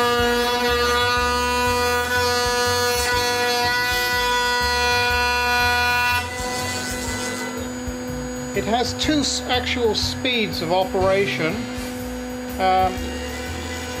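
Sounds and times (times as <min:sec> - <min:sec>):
cnc router whining: 0:00.0 - 0:14.0.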